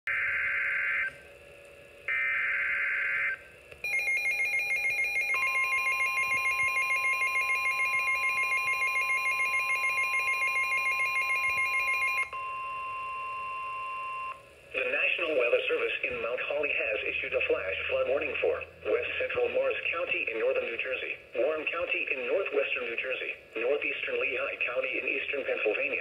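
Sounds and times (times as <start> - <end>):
pulsing electronic alarm beep: 2.1 - 14.4
steady warning tone: 2.1 - 21.0.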